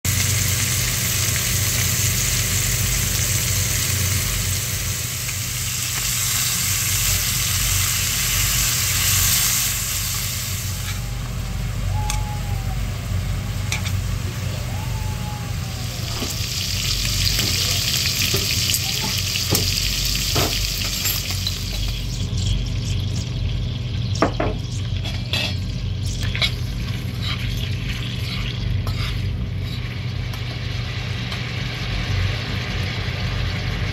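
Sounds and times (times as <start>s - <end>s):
meat sizzling in a pan: 0.1s - 12.4s, 13.8s - 33.9s
steady low hum: 0.3s - 33.9s
tongs and spatula scraping pan: 24.8s - 29.9s.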